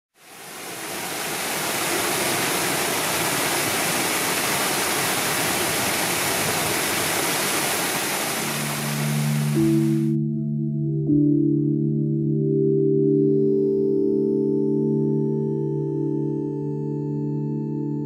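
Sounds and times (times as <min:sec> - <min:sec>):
fountain water splashing: 0:00.2 - 0:10.1.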